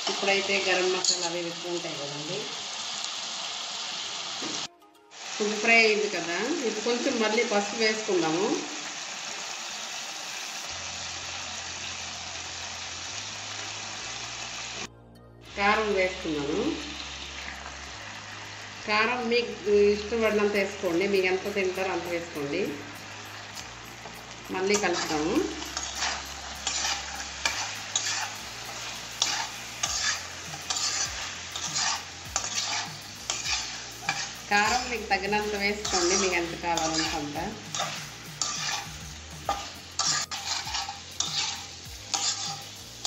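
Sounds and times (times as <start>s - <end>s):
chicken sizzling in hot oil: 0.0s - 14.9s, 15.6s - 43.0s
spatula scraping pan: 24.7s - 43.0s.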